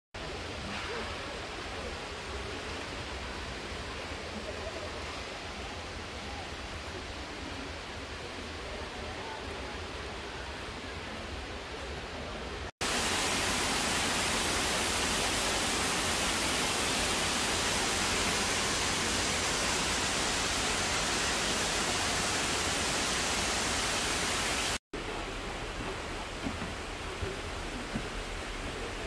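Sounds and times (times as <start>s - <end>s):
steady rushing hiss: 12.8s - 29.0s.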